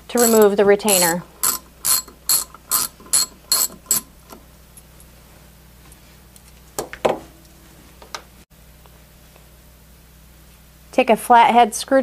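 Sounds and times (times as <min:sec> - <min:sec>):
ratchet wrench clicking: 0:00.1 - 0:04.1.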